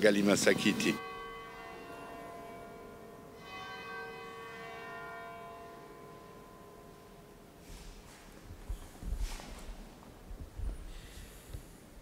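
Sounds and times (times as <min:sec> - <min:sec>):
large bell tolling: 0:00.0 - 0:08.2.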